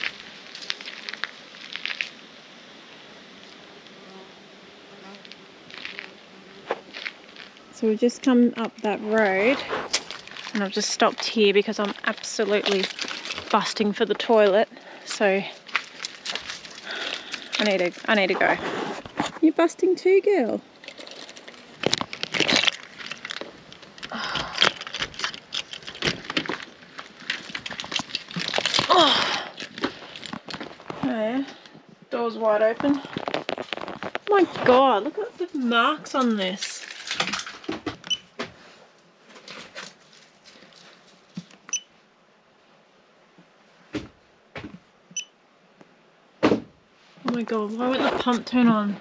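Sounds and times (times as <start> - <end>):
footsteps crunching on dry leaves: 0.0 - 2.2, 5.2 - 7.7, 9.1 - 13.7, 15.5 - 19.2, 20.8 - 24.0.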